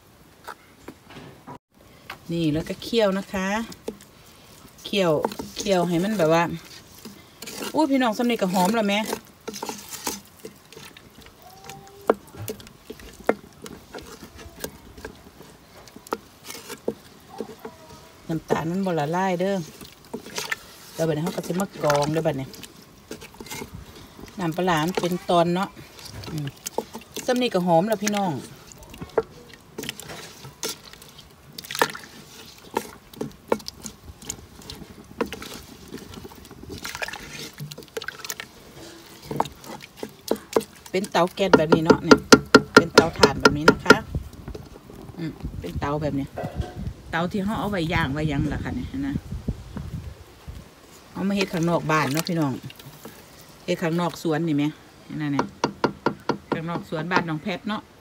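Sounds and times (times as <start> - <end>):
spatula stirring thick mixture: 2.0 - 58.0
spatula knocking metal pot: 41.3 - 44.0, 55.3 - 57.3.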